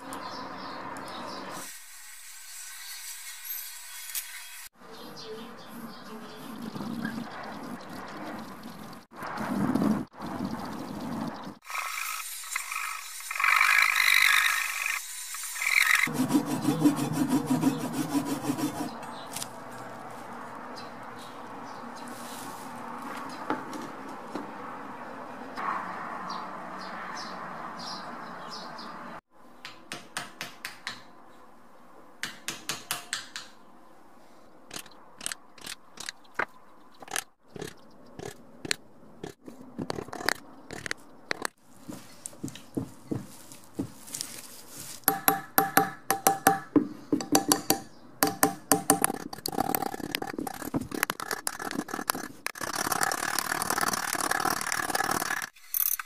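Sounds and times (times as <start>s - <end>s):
sanding sponge scraping wood: 15.4s - 19.0s.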